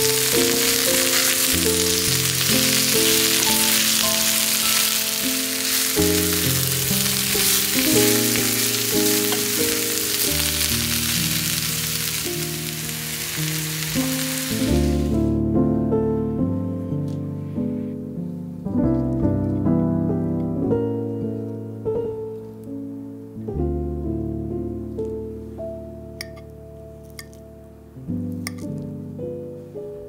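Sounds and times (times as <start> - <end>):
food sizzling in hot oil: 0.0 - 15.2
gentle background music: 0.0 - 30.0.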